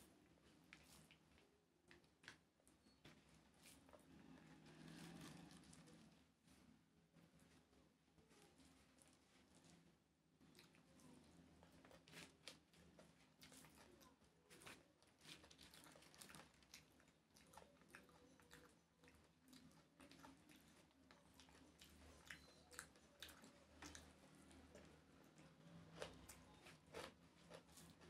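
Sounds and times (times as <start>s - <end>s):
fingers squishing rice: 10.4s - 28.0s
mouth chewing: 10.4s - 28.0s.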